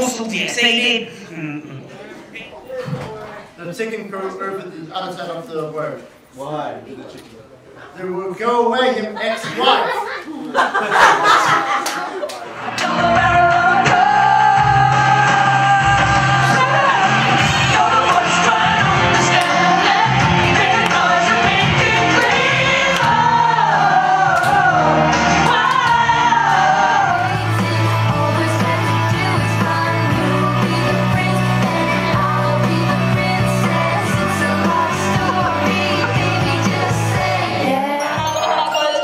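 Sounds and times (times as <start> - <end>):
girl singing: 25.5 - 39.0.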